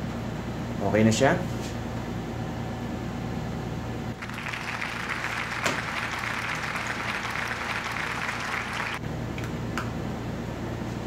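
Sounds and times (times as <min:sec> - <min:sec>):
low electrical hum: 0:00.0 - 0:11.0
applause: 0:04.2 - 0:09.5.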